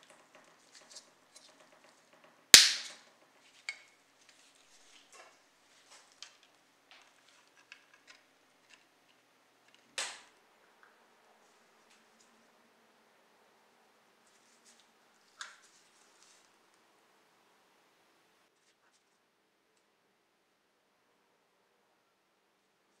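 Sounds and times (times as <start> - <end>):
sharp plastic clacks: 0.0 - 4.0.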